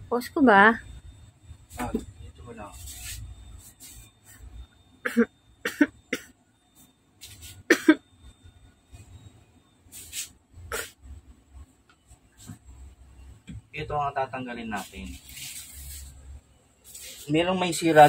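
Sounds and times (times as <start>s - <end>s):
man coughing: 5.1s - 6.4s, 7.7s - 8.0s.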